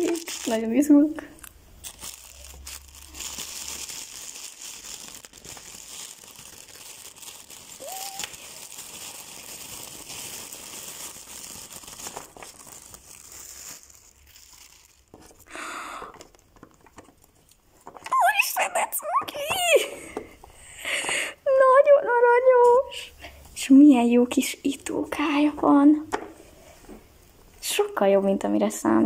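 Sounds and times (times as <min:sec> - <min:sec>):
plastic wrapper crinkling: 0:00.0 - 0:20.0.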